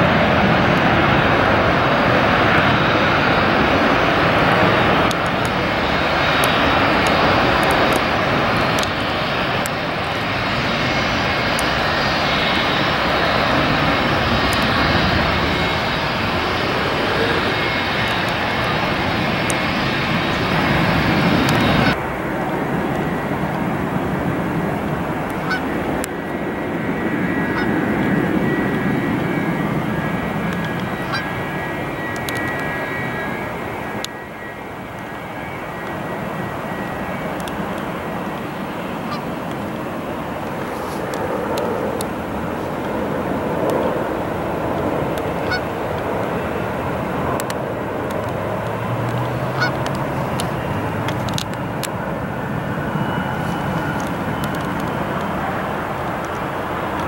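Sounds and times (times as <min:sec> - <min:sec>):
high engine whine: 0:00.0 - 0:57.0
rumbling jet noise: 0:00.0 - 0:57.0.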